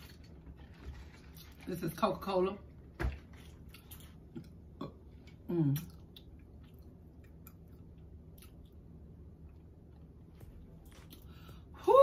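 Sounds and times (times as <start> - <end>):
person chewing food: 3.1 - 11.7.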